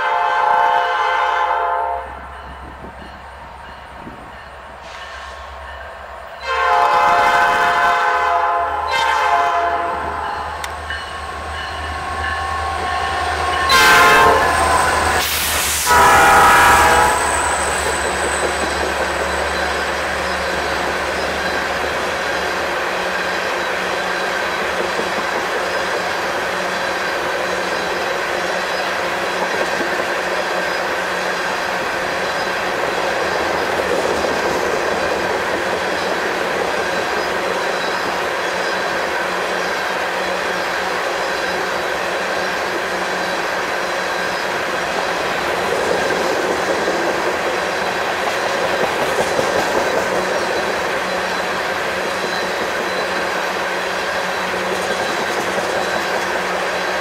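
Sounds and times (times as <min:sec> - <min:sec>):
locomotive horn blasts: 0:00.0 - 0:02.2, 0:06.4 - 0:17.4
train wheels rumbling and clacking: 0:02.1 - 0:57.0.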